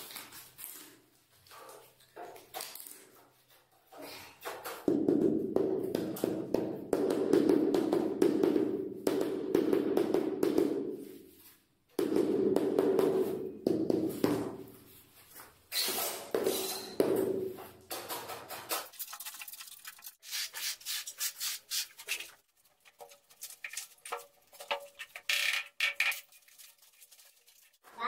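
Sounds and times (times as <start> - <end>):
rubber mallet knocking on tile: 4.9 - 11.0, 12.0 - 14.5
trowel scraping tile adhesive: 15.7 - 17.0, 18.0 - 27.8.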